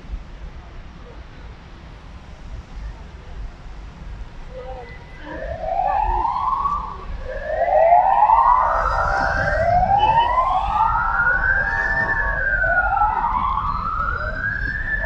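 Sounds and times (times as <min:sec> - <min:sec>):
low rumble of city traffic: 0:00.0 - 0:15.0
wailing vehicle siren: 0:04.5 - 0:15.0.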